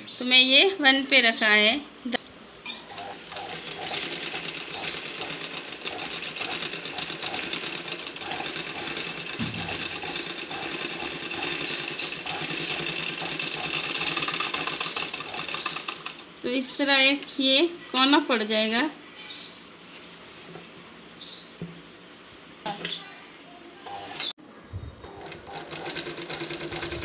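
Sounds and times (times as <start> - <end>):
sewing machine clattering: 2.9 - 16.3, 25.0 - 27.0.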